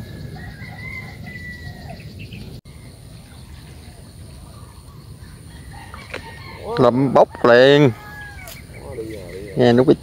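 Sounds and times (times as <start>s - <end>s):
bird calling in gliding whistles: 0.0s - 6.8s.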